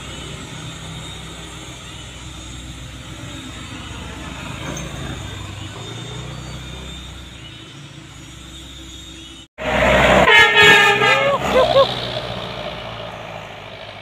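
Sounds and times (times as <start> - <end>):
minibus passing loudly: 0.0 - 14.0
truck engines labouring uphill: 0.0 - 14.0
blaring horn: 9.6 - 11.9.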